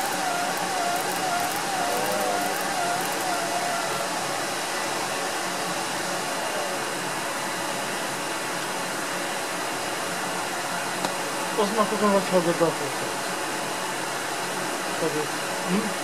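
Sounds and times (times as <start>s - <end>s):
faint wavering whine: 0.0s - 12.0s.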